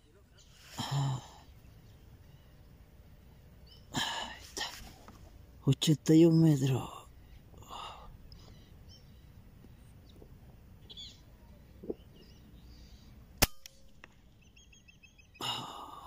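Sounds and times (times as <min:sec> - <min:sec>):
air rifle shot: 0:13.4 - 0:14.0.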